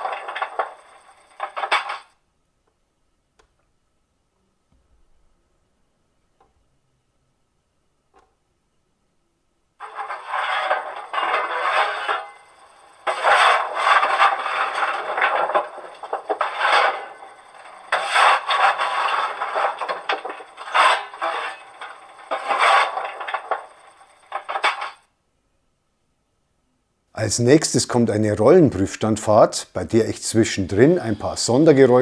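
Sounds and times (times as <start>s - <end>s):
scraping rattling shovel strokes: 0.0s - 2.1s, 9.8s - 25.0s.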